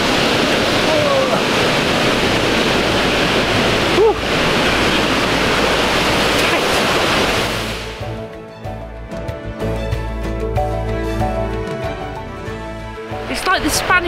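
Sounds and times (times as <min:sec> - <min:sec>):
waterfall rushing: 0:00.0 - 0:08.3
background music: 0:07.8 - 0:14.0.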